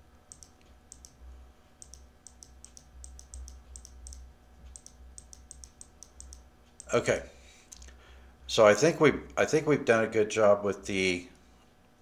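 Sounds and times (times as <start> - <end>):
low steady hum: 0.0 - 12.0
computer mouse button clicking: 0.3 - 1.2, 1.8 - 6.9.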